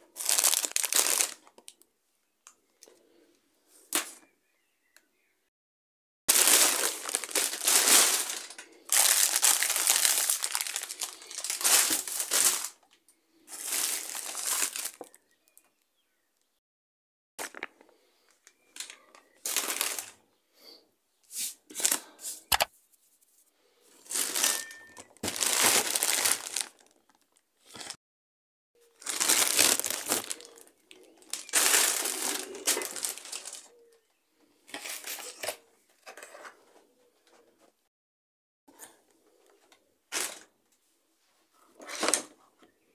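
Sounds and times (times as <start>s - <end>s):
plastic bags rustling: 0.0s - 1.8s, 6.3s - 15.2s, 17.4s - 20.2s, 21.4s - 22.5s, 23.9s - 28.0s, 28.9s - 33.8s.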